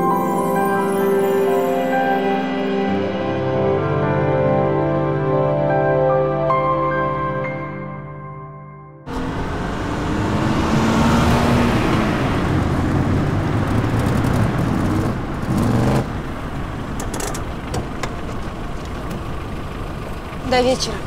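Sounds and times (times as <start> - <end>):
van engine running: 9.1 - 21.0.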